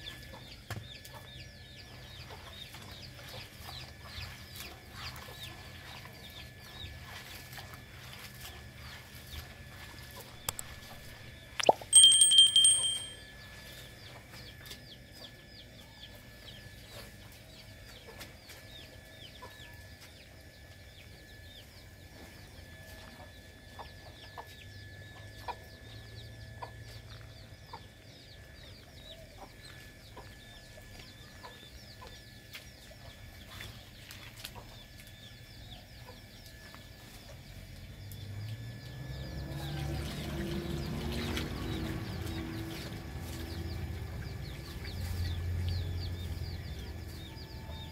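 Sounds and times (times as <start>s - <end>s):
small quick chirps: 11.6s - 12.9s.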